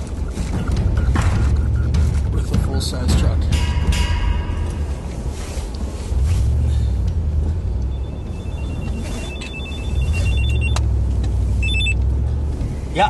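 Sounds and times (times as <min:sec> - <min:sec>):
vehicle cab rumble: 0:00.0 - 0:13.0
mobile phone ringing: 0:08.0 - 0:10.8, 0:11.6 - 0:12.0.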